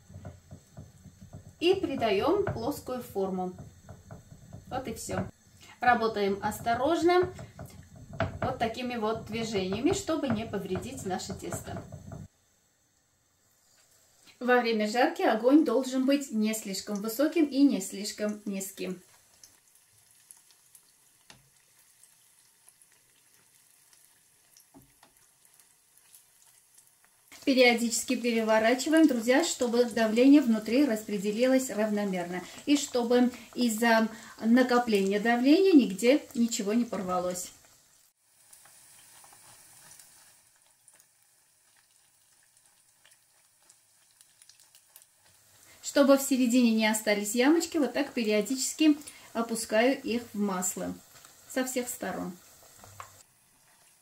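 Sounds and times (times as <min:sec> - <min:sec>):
tongs knocking: 0:00.0 - 0:02.9, 0:03.5 - 0:05.3
doughnut sizzling in oil: 0:00.0 - 0:54.0
small crackles of frying: 0:00.0 - 0:54.0.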